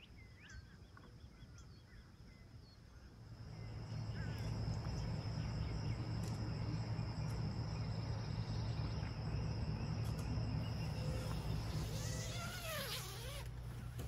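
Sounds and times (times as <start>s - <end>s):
steady low hum: 1.5s - 14.0s
insects trilling: 3.2s - 14.0s.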